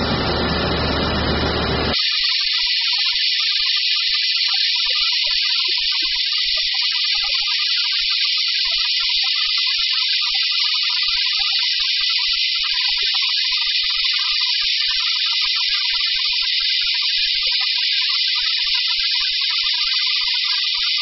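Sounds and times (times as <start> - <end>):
waterjet hissing: 0.0 - 8.2.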